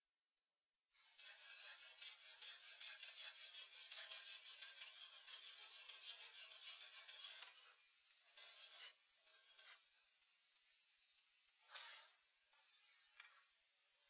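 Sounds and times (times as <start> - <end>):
scratchy rubbing on a surface: 1.0 - 9.9, 11.6 - 13.5.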